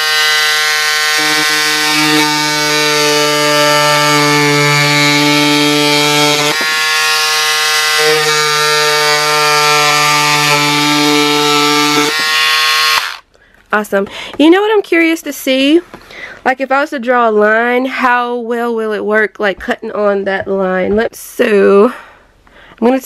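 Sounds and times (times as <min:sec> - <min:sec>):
scissors cutting cardboard: 0:00.0 - 0:13.1
electric scissors motor whine: 0:00.0 - 0:13.2.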